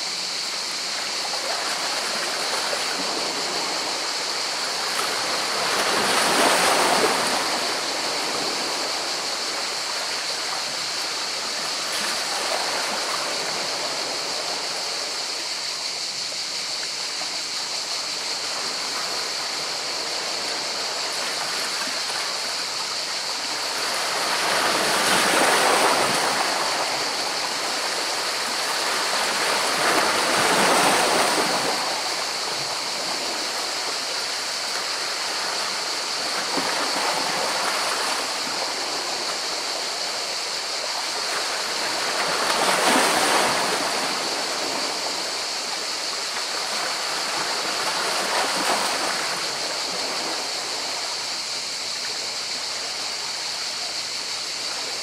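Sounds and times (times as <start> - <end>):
sea waves washing among rocks: 23.2 - 51.2.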